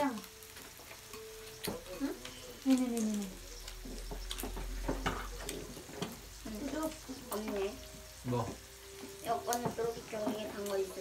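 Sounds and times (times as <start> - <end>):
meat sizzling on grill pan: 0.0 - 11.0
utensils clinking against pan: 0.1 - 7.8.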